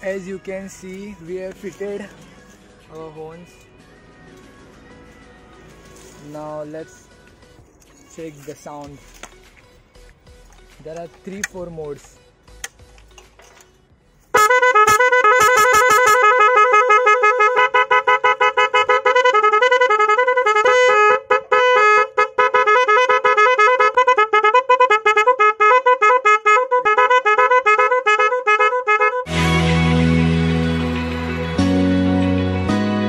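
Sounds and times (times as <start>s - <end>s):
electronic motorcycle horns tune: 14.3s - 33.0s.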